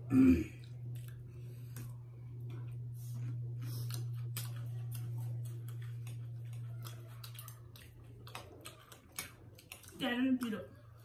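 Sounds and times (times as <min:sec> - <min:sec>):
low hum: 0:00.0 - 0:09.6
chewing: 0:00.6 - 0:11.0.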